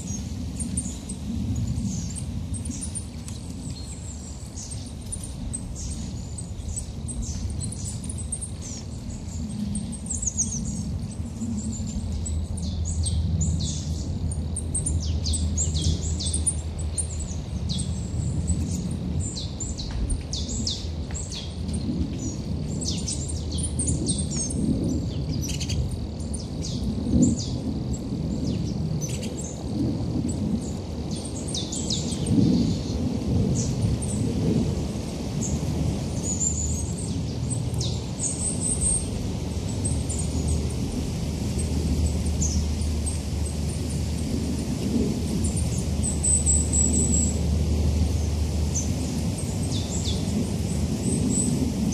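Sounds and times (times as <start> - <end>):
low rumble: 0.0 - 51.9
small birds chirping: 0.0 - 51.9.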